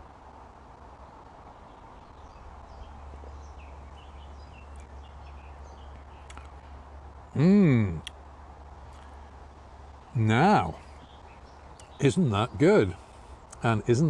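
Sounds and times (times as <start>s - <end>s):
faint clicks: 5.9s - 6.6s
faint bird chirps: 8.8s - 14.0s.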